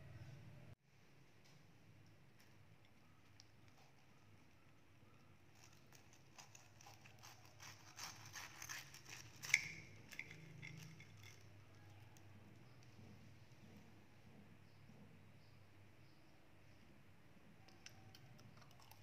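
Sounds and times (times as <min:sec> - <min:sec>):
knife crackling through tortilla: 0:05.5 - 0:11.3.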